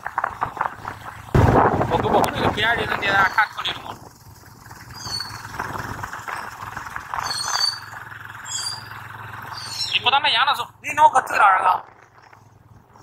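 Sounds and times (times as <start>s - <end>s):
motorcycle engine running: 0.0s - 13.0s
wind and road noise: 0.0s - 13.0s
high bird chirps: 4.8s - 5.6s, 7.2s - 10.1s.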